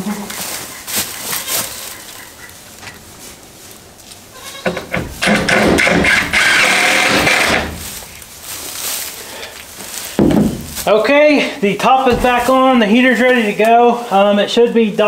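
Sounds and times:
goat bleating: 0:00.0 - 0:02.6, 0:04.3 - 0:07.7.

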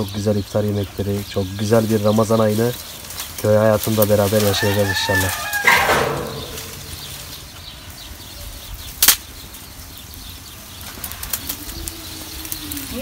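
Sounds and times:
sharp crack: 0:03.2 - 0:07.9, 0:09.0 - 0:09.3.

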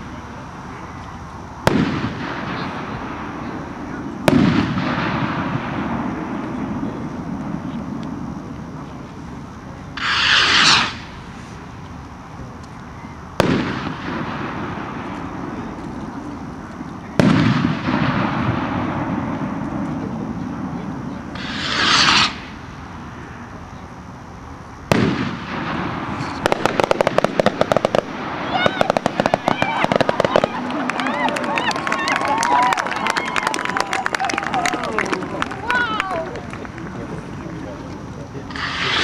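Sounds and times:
rocket bursting bangs: 0:01.6 - 0:08.6, 0:09.9 - 0:11.7, 0:13.4 - 0:23.1, 0:24.8 - 0:31.1, 0:38.5 - 0:39.0
rocket whooshing up: 0:10.0 - 0:11.7, 0:17.2 - 0:22.7, 0:38.5 - 0:39.0.

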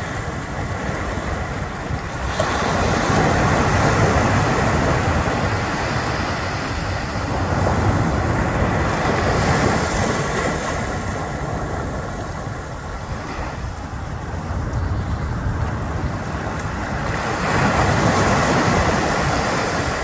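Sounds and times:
ocean surf on beach: 0:00.0 - 0:20.0
wind buffeting microphone: 0:00.0 - 0:20.0.

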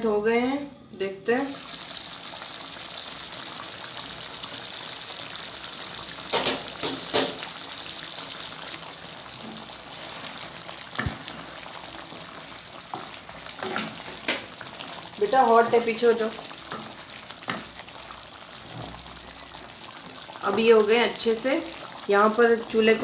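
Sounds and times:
food simmering with bubbling hiss: 0:00.8 - 0:23.0.

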